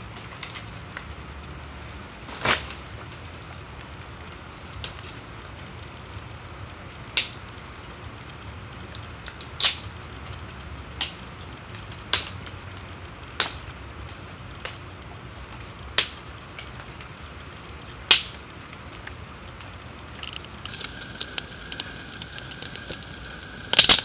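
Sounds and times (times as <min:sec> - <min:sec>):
steady outdoor hiss: 0:00.0 - 0:24.0
dry sticks cracking: 0:00.1 - 0:01.2, 0:20.2 - 0:24.0.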